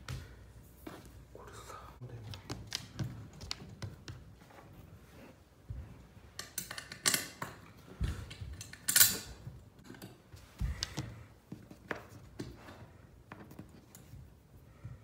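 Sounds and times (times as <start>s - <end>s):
metal frame parts clicking: 6.4s - 7.7s, 8.3s - 10.2s.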